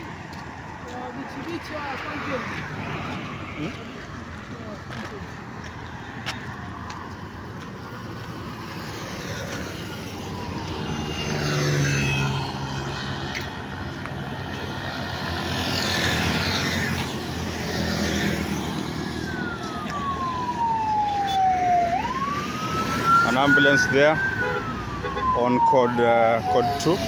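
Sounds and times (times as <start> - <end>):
highway traffic: 0.0 - 27.0
vehicles passing by: 0.0 - 27.0
ambulance siren wailing: 8.4 - 27.0.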